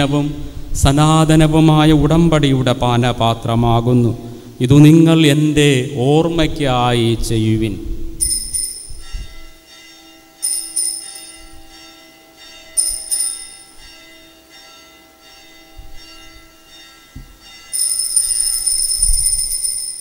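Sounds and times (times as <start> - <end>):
steady held tone: 0.0 - 20.0
altar bells jingling: 8.2 - 20.0.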